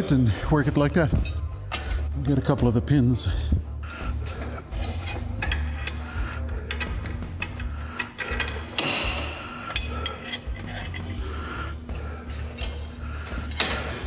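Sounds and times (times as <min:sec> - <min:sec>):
background music: 0:00.0 - 0:14.0
metal clicks and clanks: 0:04.2 - 0:11.2, 0:12.3 - 0:14.0.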